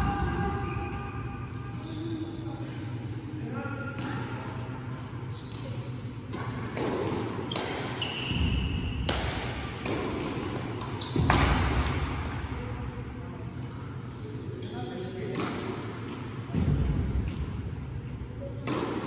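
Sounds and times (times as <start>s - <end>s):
shoes squeaking on court floor: 1.7s - 2.4s, 4.9s - 6.1s, 7.4s - 8.9s, 10.4s - 15.2s
rackets hitting shuttlecock: 6.3s - 12.1s, 15.3s - 17.4s, 18.6s - 19.0s.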